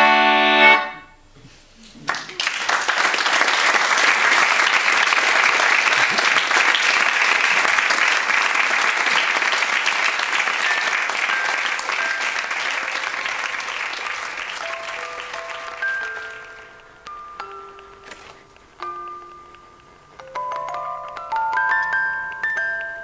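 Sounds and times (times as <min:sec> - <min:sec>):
audience applauding: 0:01.8 - 0:17.0.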